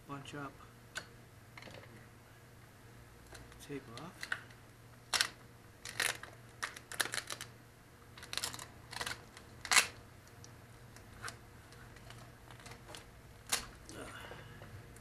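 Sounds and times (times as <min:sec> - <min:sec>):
tape peeling and crumpling: 0:03.9 - 0:13.9.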